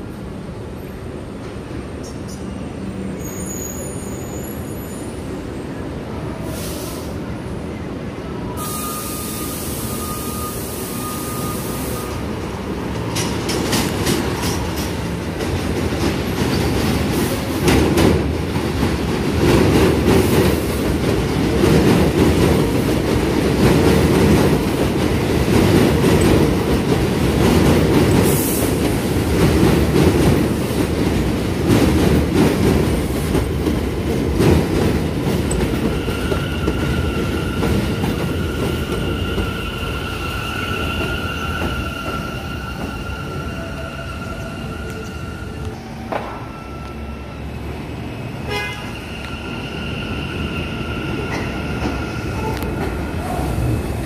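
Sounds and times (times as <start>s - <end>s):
high wheel squeal: 3.0s - 5.2s, 8.6s - 12.4s, 35.9s - 47.5s
train wheels clattering on rails: 12.9s - 40.0s.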